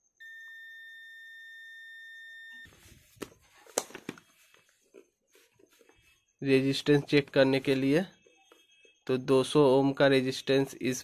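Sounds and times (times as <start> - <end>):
multimeter continuity beep: 0.1 - 2.8, 6.1 - 9.8.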